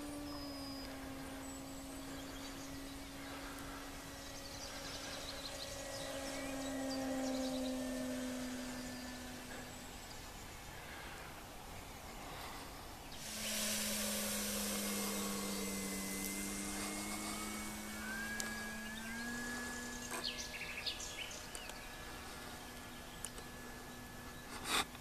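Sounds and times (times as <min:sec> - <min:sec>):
high-pitched motor whine: 0:00.0 - 0:25.0
model airplane motor droning: 0:00.0 - 0:25.0.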